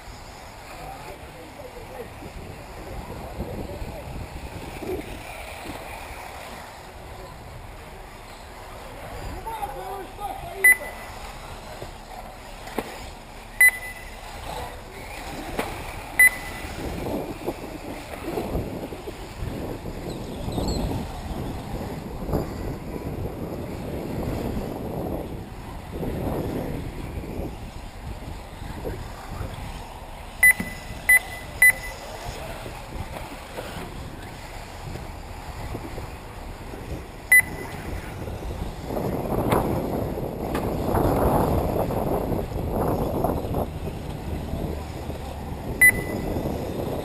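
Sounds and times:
short high electronic beeps: 10.6 - 11.0, 13.6 - 14.2, 16.2 - 16.6, 30.4 - 32.0, 37.3 - 37.7, 45.8 - 46.3.

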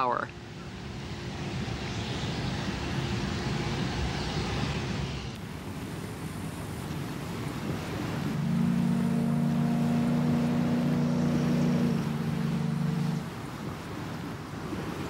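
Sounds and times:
wind: 0.0 - 15.0
churning water: 5.4 - 15.0
deep boat whistle chord: 8.2 - 13.6.

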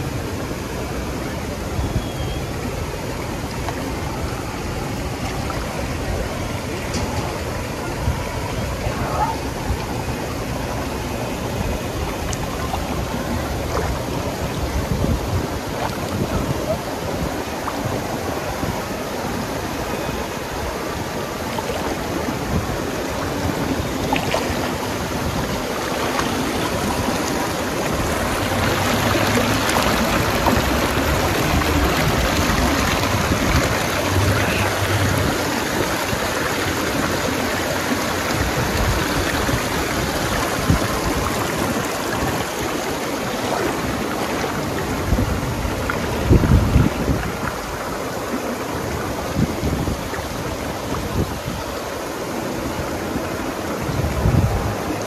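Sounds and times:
rushing water: 0.0 - 55.0.

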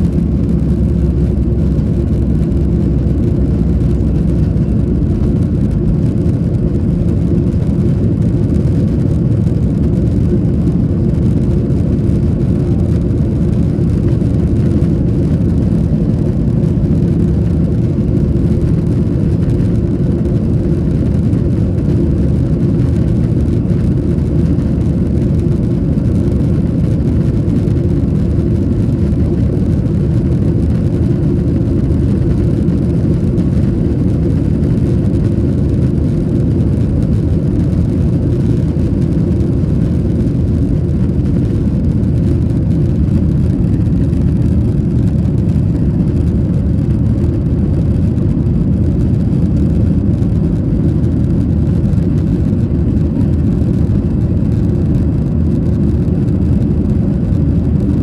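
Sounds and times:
airplane cabin engine drone: 0.0 - 58.0.

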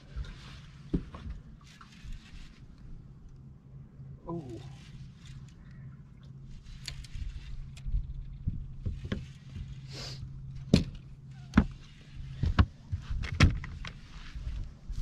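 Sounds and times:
steady low hum: 0.0 - 15.0
knocks and thumps on boat deck: 0.9 - 1.4, 8.4 - 9.7, 10.6 - 13.8.

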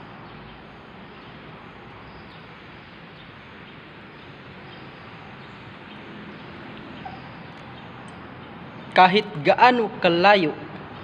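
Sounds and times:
steady background noise: 0.0 - 11.0
faint high chirps: 7.0 - 8.9.

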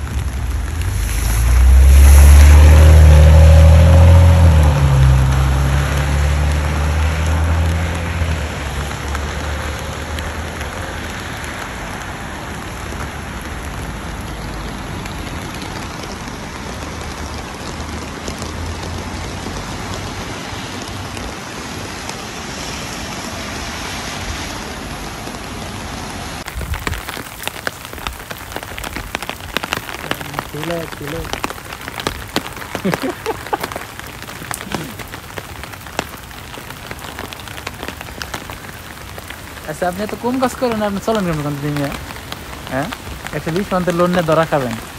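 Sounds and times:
steady rain falling: 0.0 - 44.9
vehicle low rumble: 0.0 - 44.9
close pattering of drops: 26.4 - 44.9.

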